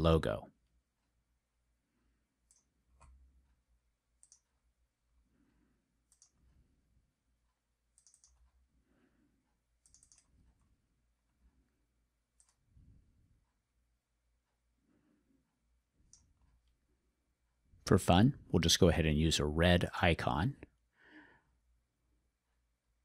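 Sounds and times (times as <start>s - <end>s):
computer mouse clicks: 2.4s - 3.2s, 4.2s - 4.6s, 6.0s - 6.6s, 7.9s - 8.6s, 9.8s - 10.8s, 12.3s - 12.7s, 16.0s - 16.8s.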